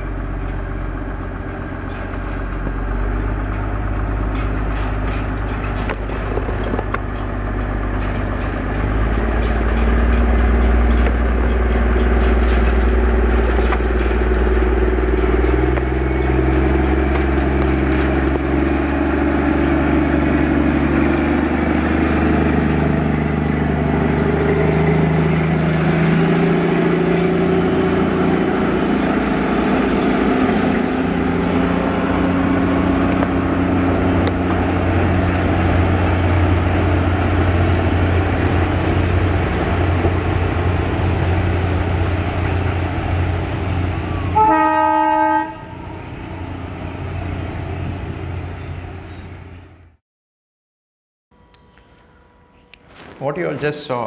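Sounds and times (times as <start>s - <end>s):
train locomotive engine: 0.0s - 50.0s
train horn: 44.3s - 46.0s.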